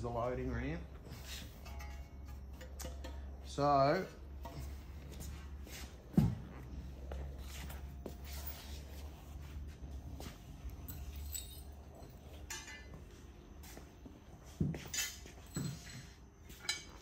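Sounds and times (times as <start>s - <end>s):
low steady hum: 0.0s - 17.0s
small metal parts clinking: 10.8s - 12.9s.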